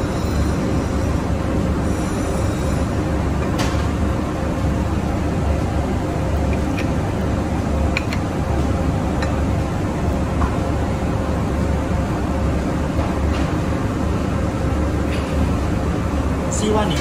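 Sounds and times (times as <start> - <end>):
machine rumble and hum: 0.0 - 17.0
utensil clicking on ceramic plate: 7.9 - 8.3.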